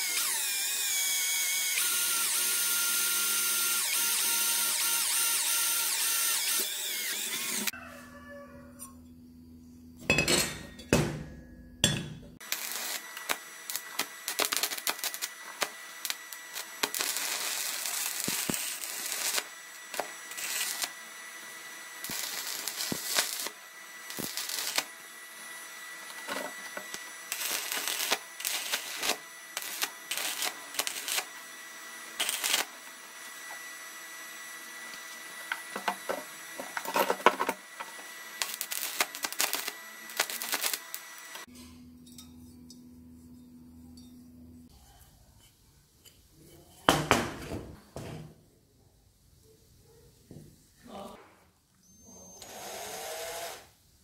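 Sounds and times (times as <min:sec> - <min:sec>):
welding arc crackling: 0:00.0 - 0:07.7, 0:12.4 - 0:33.7, 0:34.7 - 0:41.5.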